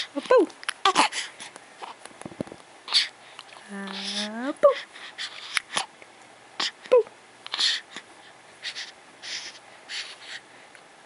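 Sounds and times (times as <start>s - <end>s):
baby cooing: 0.8s - 1.2s
baby breathing: 2.9s - 5.9s, 7.4s - 10.7s.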